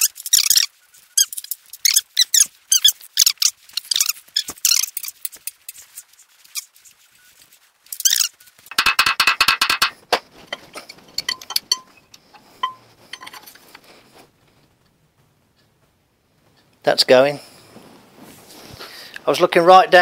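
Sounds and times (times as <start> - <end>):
tool clinking against metal: 8.7 - 13.7.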